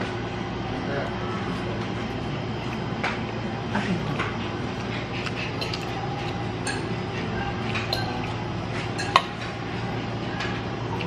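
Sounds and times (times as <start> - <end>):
fork clinking on ceramic plate: 5.6 - 5.9, 7.8 - 8.4, 9.0 - 9.4.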